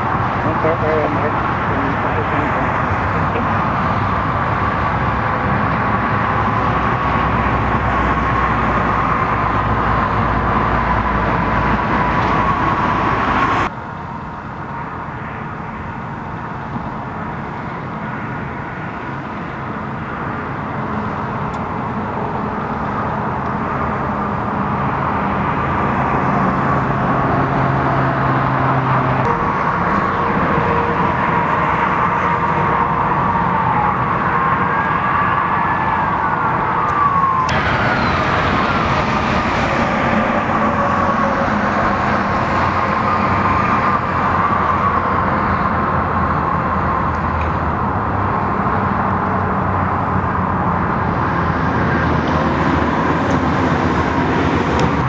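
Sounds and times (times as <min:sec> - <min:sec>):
road traffic: 0:00.0 - 0:55.0
vehicle engines idling: 0:00.0 - 0:55.0
steady high tone: 0:29.2 - 0:46.4.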